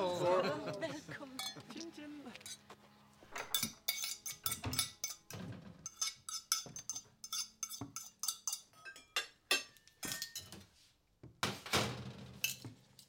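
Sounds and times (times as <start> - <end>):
crockery and cutlery clinking: 1.4 - 2.7, 3.3 - 10.7, 12.4 - 13.0.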